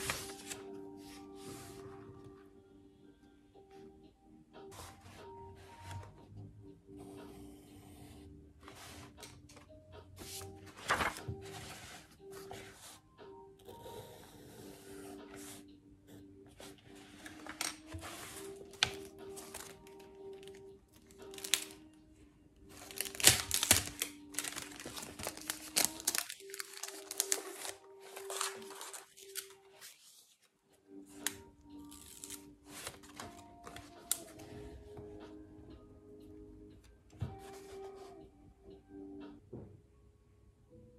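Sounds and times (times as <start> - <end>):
book pages rustling: 0.0 - 2.4, 4.7 - 6.2, 8.6 - 13.0, 16.6 - 21.8, 22.7 - 30.5, 31.2 - 34.8, 37.3 - 38.2
soft background music: 0.0 - 40.9.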